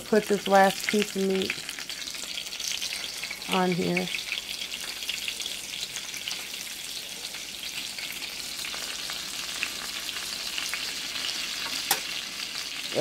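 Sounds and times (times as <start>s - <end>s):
steak sizzling and crackling: 0.0s - 13.0s.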